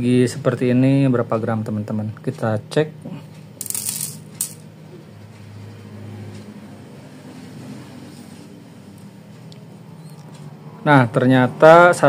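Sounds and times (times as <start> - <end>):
crystals rattling onto metal tray: 3.6 - 4.6.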